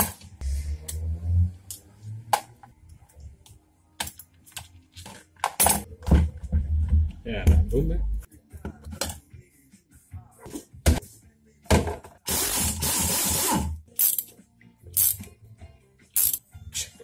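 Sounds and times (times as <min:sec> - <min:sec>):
metal parts clinking: 0:16.2 - 0:16.4.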